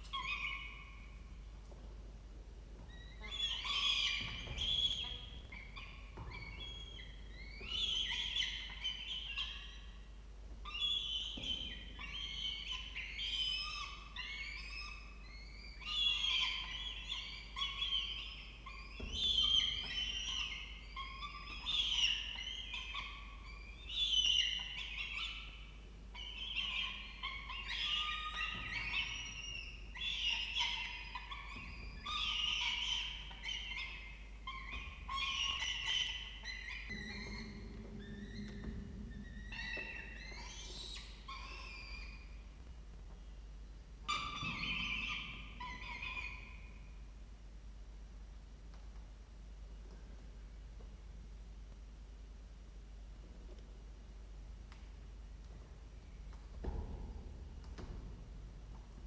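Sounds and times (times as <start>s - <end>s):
falcon chicks begging calls: 3.2s - 9.8s, 26.2s - 42.2s.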